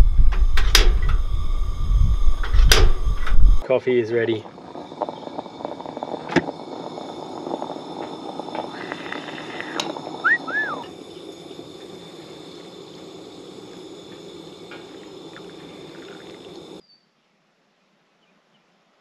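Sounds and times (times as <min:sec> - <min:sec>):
outdoor hiss with high tones: 0:00.0 - 0:19.0
coffee pouring into metal mug: 0:03.6 - 0:16.8
bird whistles: 0:10.2 - 0:10.9.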